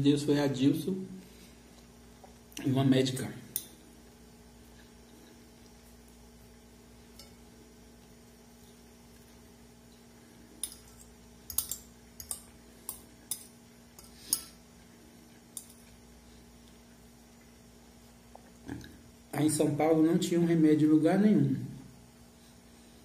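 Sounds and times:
faint steady hum: 0:00.0 - 0:23.0
fork clinking on ceramic bowl: 0:10.6 - 0:14.6.

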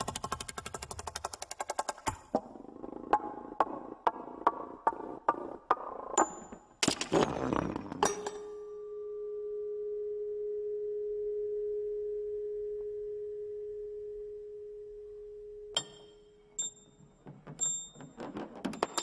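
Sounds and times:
steady ringing tone: 0:08.4 - 0:18.2
metal car parts clattering: 0:17.4 - 0:19.0.

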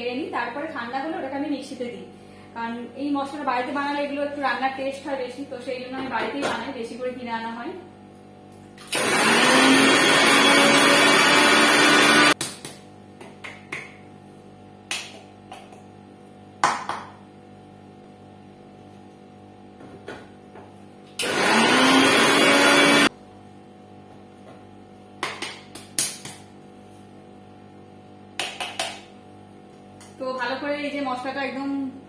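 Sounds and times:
mixer grinder motor: 0:08.8 - 0:12.4, 0:21.2 - 0:23.1.

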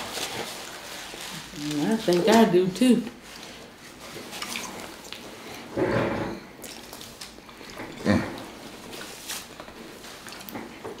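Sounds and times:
wet chewing and lip-smacking: 0:04.2 - 0:05.7, 0:06.6 - 0:11.0.

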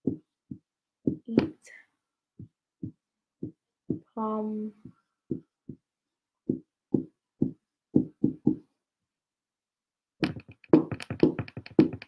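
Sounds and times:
marker knocking on whiteboard: 0:04.8 - 0:05.9, 0:06.5 - 0:08.6, 0:10.2 - 0:12.0.

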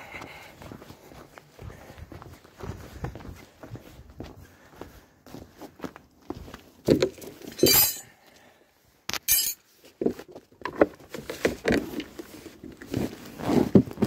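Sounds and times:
hard objects clinking and knocking: 0:07.5 - 0:08.1, 0:09.2 - 0:09.6.

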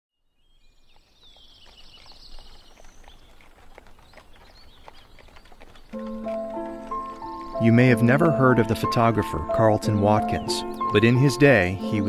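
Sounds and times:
light clops: 0:00.9 - 0:08.4
high bird trill: 0:04.0 - 0:12.0.

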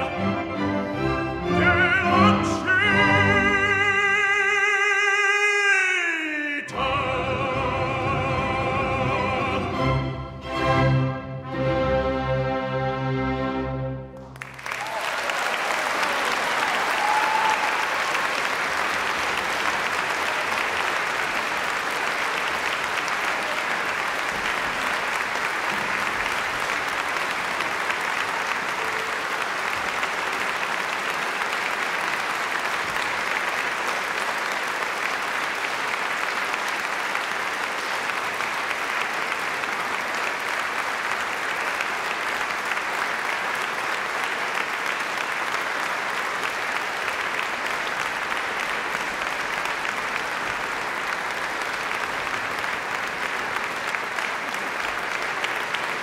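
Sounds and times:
audience applauding: 0:00.0 - 0:00.6, 0:14.2 - 0:56.0.

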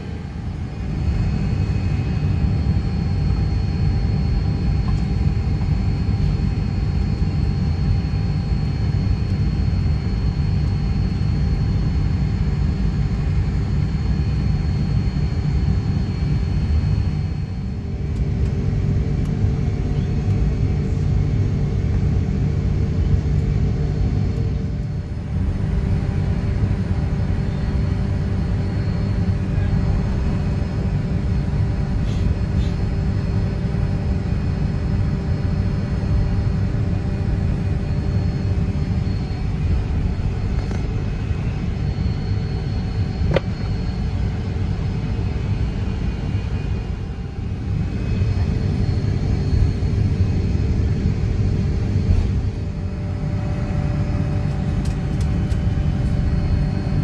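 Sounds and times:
airplane cabin low rumble: 0:00.0 - 0:57.0
faint steady tones: 0:33.3 - 0:57.0.

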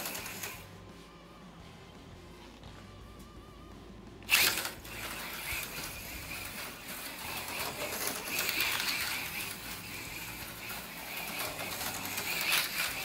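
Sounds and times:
slot car motor whine: 0:04.3 - 0:13.0.

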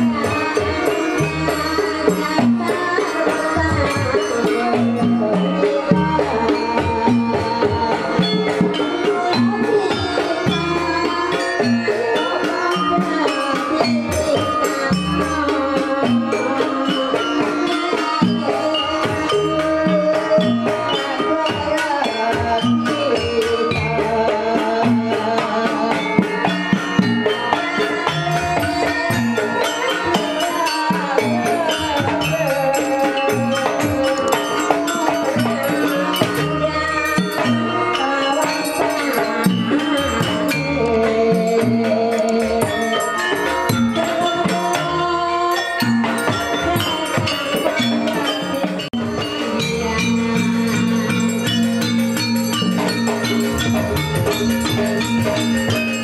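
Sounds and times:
hand drums driving beat: 0:00.0 - 0:56.0
metallophones gongs and cymbal: 0:00.0 - 0:56.0
wavering melodic line: 0:26.9 - 0:56.0.

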